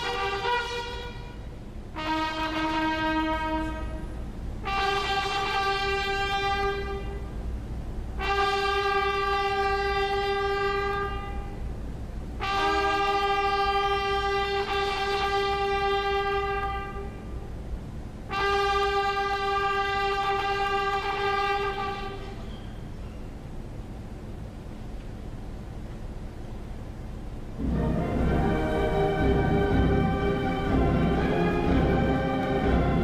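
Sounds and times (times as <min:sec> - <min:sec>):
fanfare trumpets long held notes: 0:00.0 - 0:07.4, 0:08.1 - 0:11.7, 0:12.4 - 0:17.6, 0:18.2 - 0:22.4, 0:27.6 - 0:33.0.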